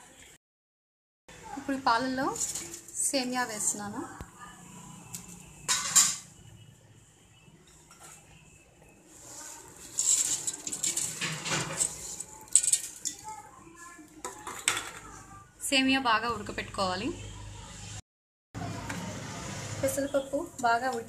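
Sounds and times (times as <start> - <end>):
milk boiling: 9.1 - 14.6
metal spoon clinking in pot: 9.9 - 13.3.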